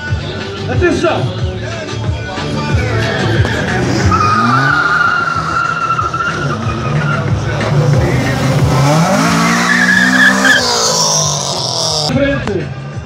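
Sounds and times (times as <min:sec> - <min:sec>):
car engine revving: 0:02.5 - 0:12.1
tyres squealing: 0:02.8 - 0:12.1.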